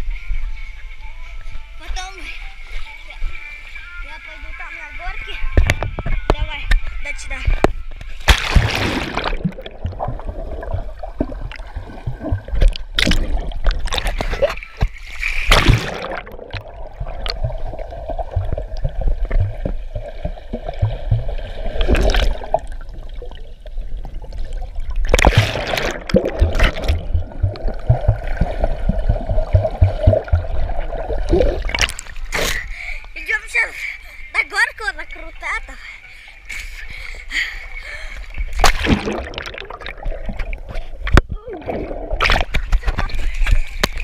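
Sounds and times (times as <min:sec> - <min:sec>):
steady underwater hum: 0:00.0 - 0:43.9
underwater bubbles and rushing water: 0:04.5 - 0:32.4, 0:38.2 - 0:44.0
low thuds: 0:07.5 - 0:13.9, 0:15.5 - 0:22.4, 0:25.1 - 0:32.0.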